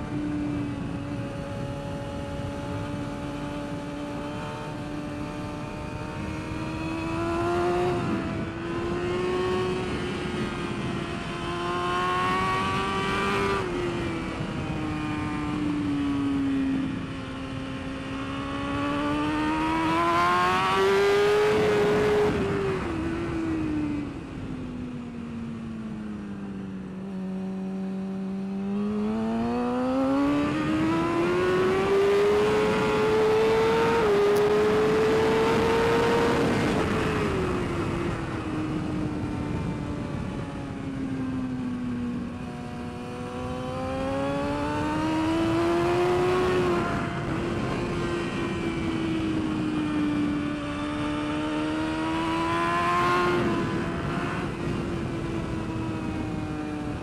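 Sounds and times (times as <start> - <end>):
motorcycle engine at speed: 0.0 - 57.0
wind rush: 28.8 - 57.0.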